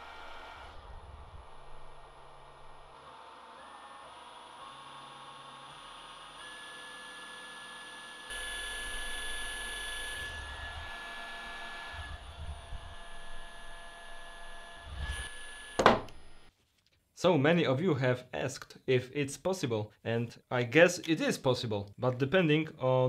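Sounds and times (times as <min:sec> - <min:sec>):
electric motor whine: 0:00.0 - 0:16.5.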